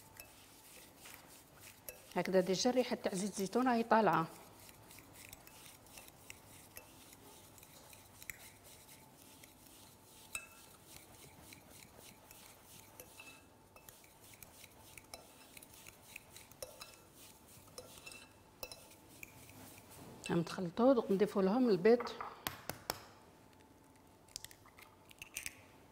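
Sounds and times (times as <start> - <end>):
fork clinking and scraping on glass: 0.1 - 2.2, 4.6 - 9.4, 10.2 - 20.0.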